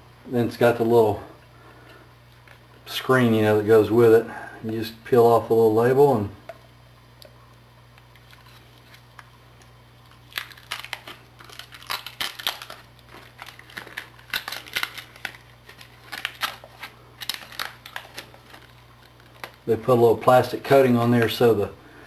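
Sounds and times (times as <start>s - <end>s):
plastic film crinkling: 7.9s - 21.5s.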